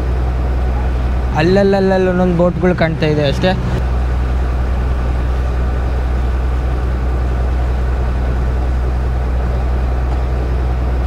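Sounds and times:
ferry engine drone: 0.0s - 11.0s.

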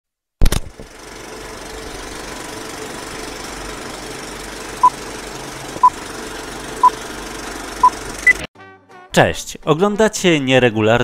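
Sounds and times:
film projector clatter: 0.4s - 8.5s.

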